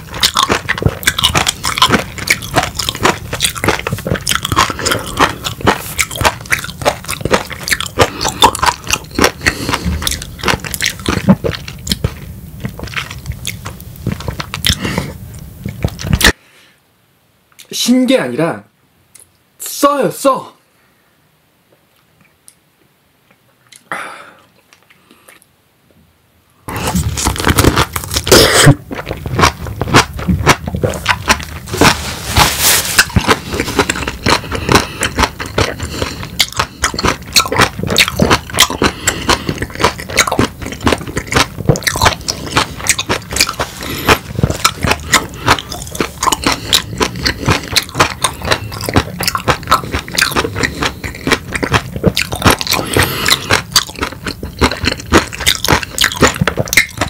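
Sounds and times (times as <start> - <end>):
chewing lemon crackling clicks: 0.0 - 12.2, 33.0 - 57.0.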